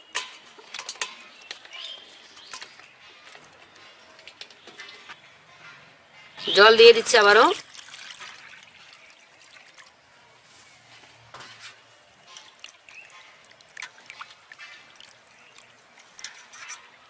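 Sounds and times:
water splashing and sloshing: 7.0 - 10.5, 11.3 - 17.0
water pouring into steel bowl: 7.5 - 10.0, 12.2 - 16.9.

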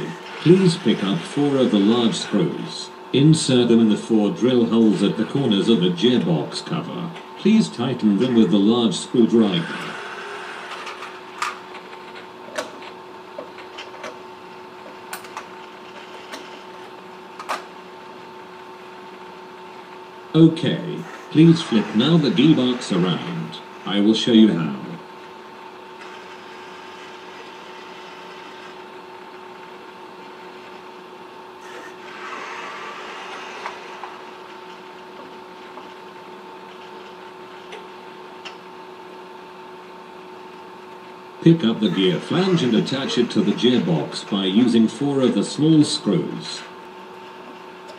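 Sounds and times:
robot arm motors: 0.0 - 6.3, 7.4 - 14.2, 20.8 - 25.0, 25.9 - 29.0, 31.6 - 36.0, 41.4 - 46.4
steady electrical hum: 0.0 - 47.9
robot hum: 8.0 - 11.0, 20.9 - 25.0, 31.6 - 34.4, 41.4 - 45.4.

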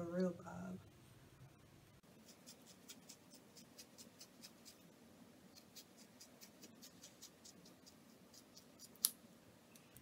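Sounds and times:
scissors snipping hair: 2.2 - 4.8, 5.5 - 9.2.

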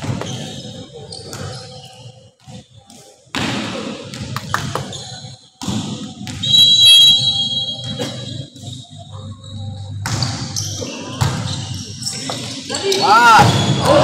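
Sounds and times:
referee's whistle: 6.4 - 8.3.

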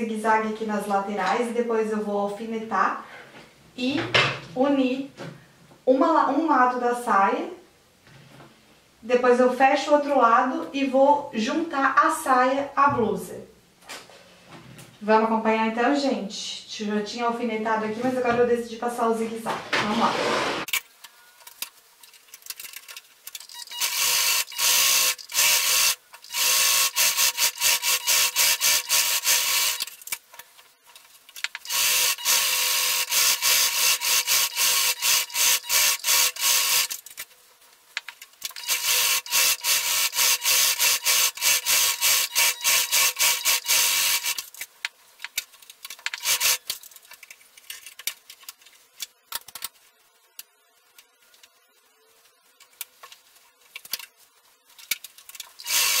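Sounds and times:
sewing machine rattling: 22.4 - 29.9, 31.5 - 37.0, 38.4 - 44.6, 46.0 - 46.8, 55.5 - 56.0.

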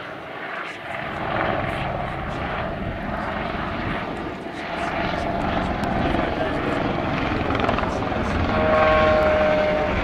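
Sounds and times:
helicopter turbine and rotors: 0.0 - 10.0.

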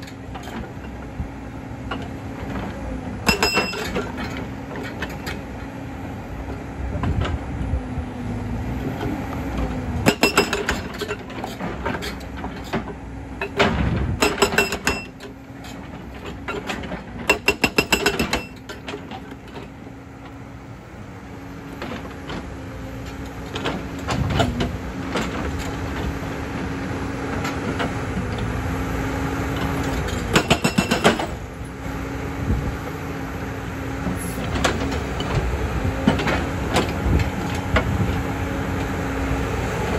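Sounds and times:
diesel engine running: 0.0 - 39.9
hydraulic breaker hammering stone: 3.2 - 4.0, 10.0 - 11.0, 13.5 - 15.2, 17.2 - 18.6, 30.2 - 31.4.

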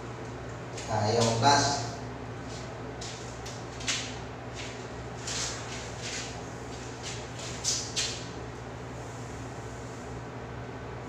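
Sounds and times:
steady low hum: 0.0 - 11.0
footsteps on tiled floor: 2.4 - 8.3.

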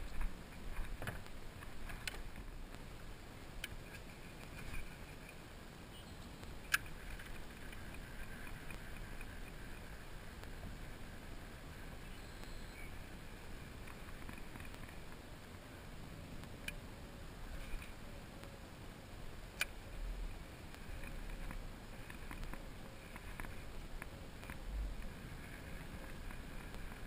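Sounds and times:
wind rumble on microphone: 12.8 - 27.0.

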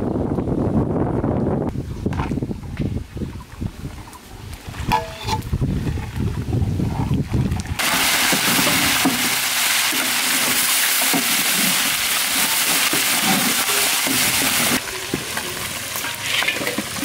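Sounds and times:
metal spatula scraping: 4.9 - 5.5, 16.0 - 17.0
fish frying in hot oil: 7.8 - 17.0.

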